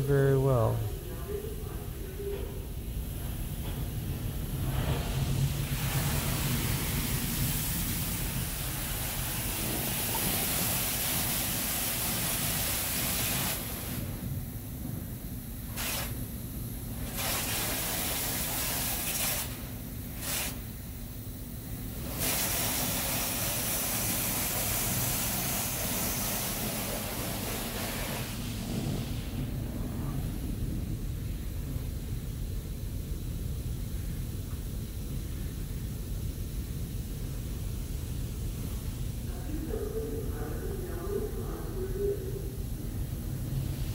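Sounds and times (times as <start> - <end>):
water jets hissing: 4.4 - 14.1, 22.0 - 29.4.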